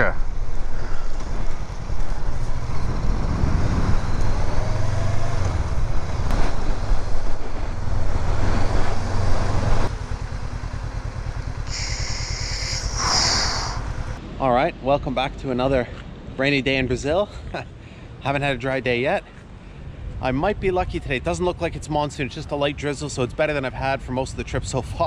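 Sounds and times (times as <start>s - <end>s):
steady background noise: 0.0s - 24.8s
motorcycle engine running: 0.1s - 14.2s.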